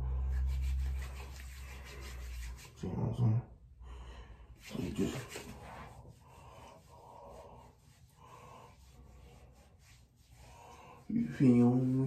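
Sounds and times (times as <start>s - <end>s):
hands rubbing wet face: 0.2s - 2.9s, 4.6s - 12.0s.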